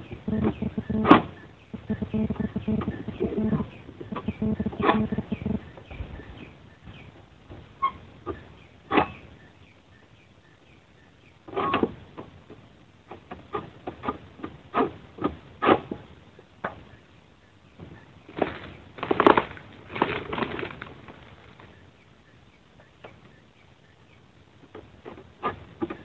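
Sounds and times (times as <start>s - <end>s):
leaf rustles: 18.2s - 22.0s
fronds crashing: 18.3s - 21.8s.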